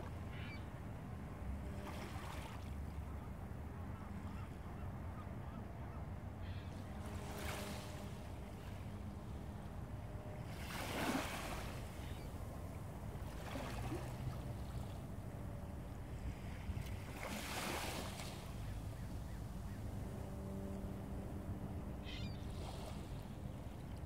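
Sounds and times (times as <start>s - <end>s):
boat engine drone: 0.0s - 24.0s
small waves washing on shore: 10.4s - 12.1s, 12.8s - 21.2s.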